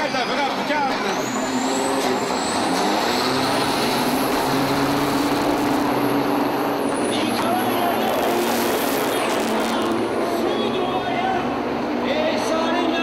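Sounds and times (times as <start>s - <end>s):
diesel trucks accelerating hard: 0.0s - 13.0s
high whine: 1.2s - 11.5s.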